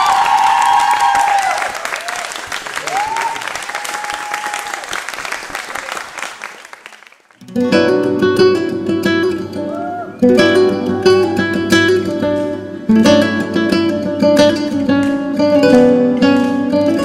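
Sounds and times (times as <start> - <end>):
audience applauding: 0.0 - 7.4
acoustic guitar strumming: 7.4 - 17.0.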